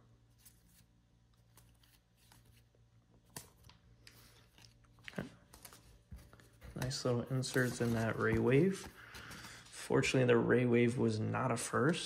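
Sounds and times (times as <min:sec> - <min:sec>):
cards being flipped through: 0:00.3 - 0:09.6.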